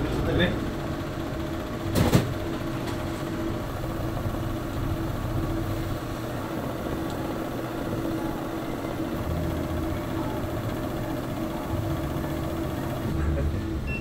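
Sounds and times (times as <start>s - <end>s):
oven motor humming: 0.0s - 14.0s.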